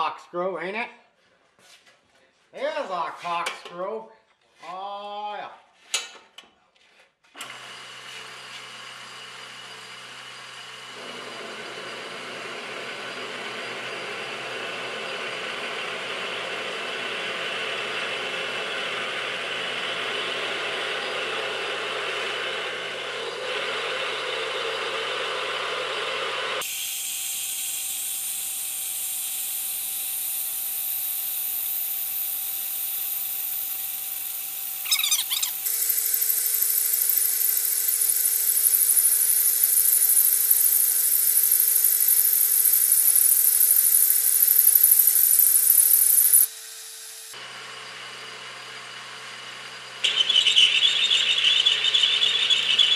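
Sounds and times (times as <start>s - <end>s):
drill cutting cast iron: 7.4s - 50.2s
lathe running: 7.5s - 52.9s
high hiss with steady tone: 36.2s - 46.4s.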